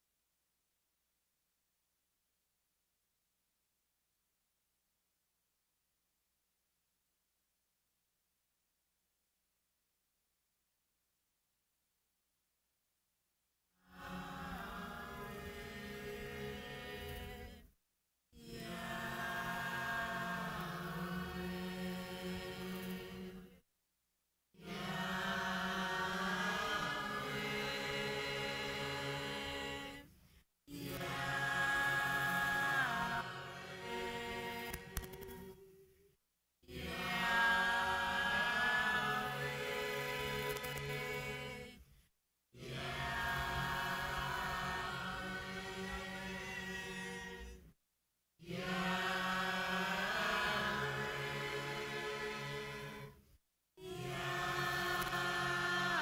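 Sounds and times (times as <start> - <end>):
choir singing held chords: 13.9 - 17.7, 18.4 - 23.6, 24.6 - 30.1, 30.7 - 35.8, 36.7 - 41.8, 42.6 - 47.6, 48.4 - 53.2, 53.8 - 56.0.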